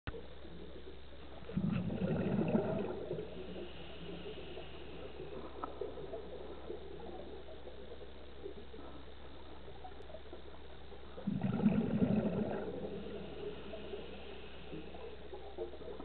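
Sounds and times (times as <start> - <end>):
faint crackles: 0.1 - 16.0
regulator bubbles gurgling underwater: 0.1 - 16.0
underwater hiss: 1.3 - 9.6, 11.0 - 16.0.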